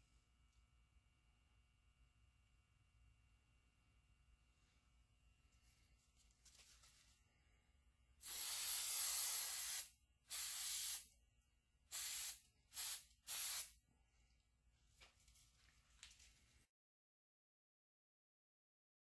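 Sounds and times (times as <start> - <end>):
aerosol spray can hissing: 8.2 - 11.1, 11.9 - 13.8.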